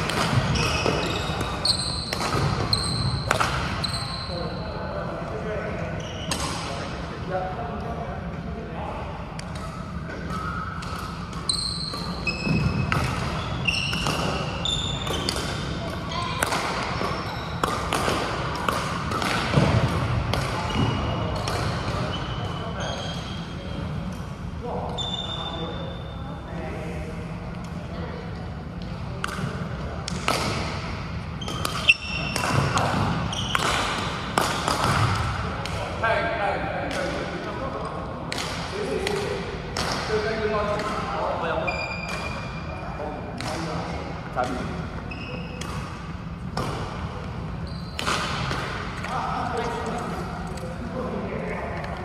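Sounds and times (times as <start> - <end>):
racket hitting shuttlecock: 0.0 - 3.7, 9.4 - 22.1, 29.2 - 35.8, 47.9 - 49.1
shoes squeaking on floor: 0.4 - 4.6, 5.9 - 6.4, 11.4 - 15.3, 16.8 - 17.6, 20.6 - 23.8, 31.4 - 33.7, 41.6 - 42.5, 45.0 - 45.6, 47.6 - 48.1.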